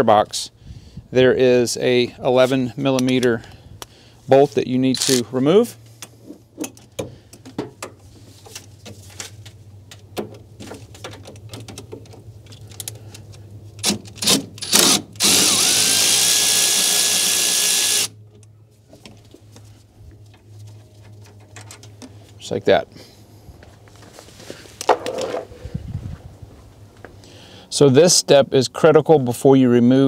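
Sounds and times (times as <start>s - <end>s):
power tool motor whine: 14.2s - 18.2s.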